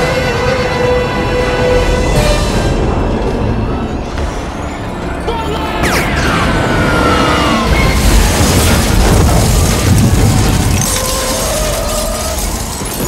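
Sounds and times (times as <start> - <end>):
explosion rumble: 7.7 - 13.0.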